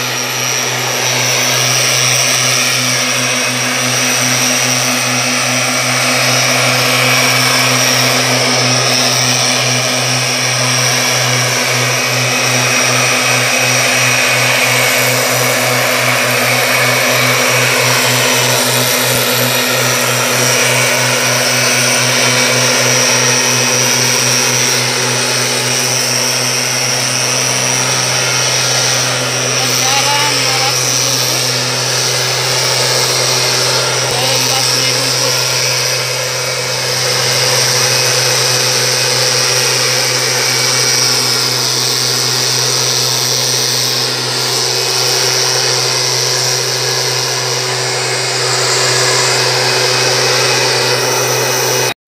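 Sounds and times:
mist blower engines droning: 0.0 - 52.0.

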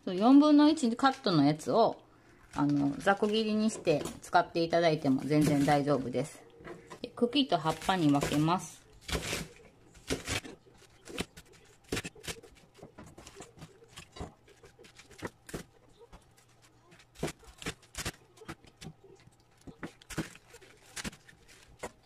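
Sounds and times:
cabbage leaves crunching and rustling: 5.2 - 6.1, 7.6 - 12.6, 20.0 - 22.0.

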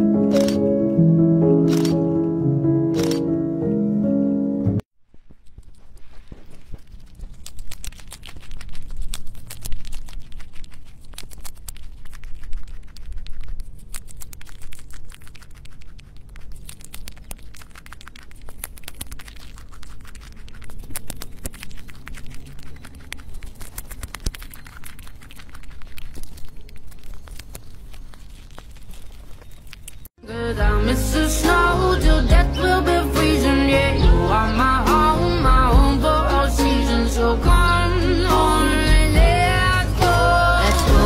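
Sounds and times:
squirrel chewing crunches: 5.2 - 30.2
low rumble: 30.4 - 41.0.

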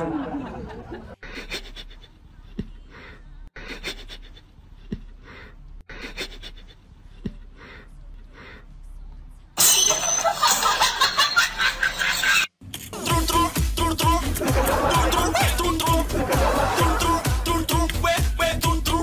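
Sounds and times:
breathy laughter: 0.0 - 2.2.

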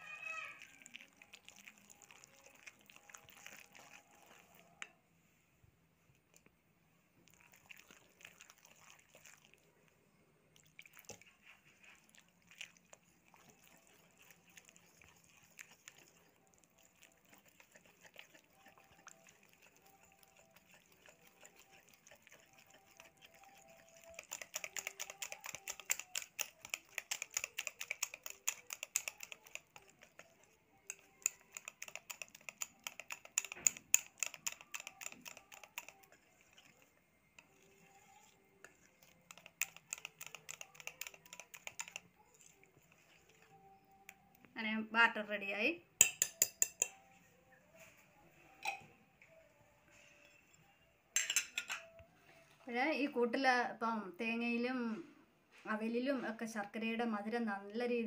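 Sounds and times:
whisk stirring wet batter: 0.0 - 4.9, 7.2 - 9.7, 10.6 - 44.3, 46.0 - 47.0
whisk clicking against bowl: 13.3 - 43.5, 46.0 - 47.0.

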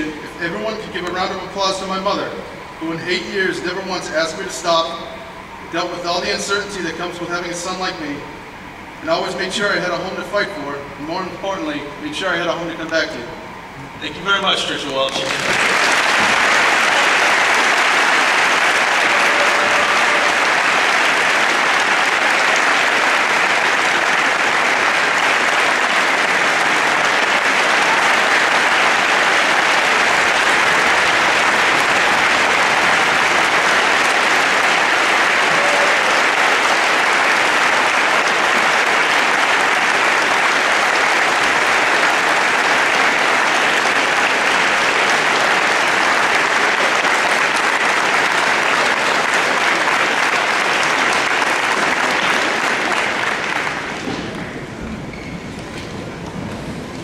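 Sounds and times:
crowd applauding: 14.7 - 54.7.

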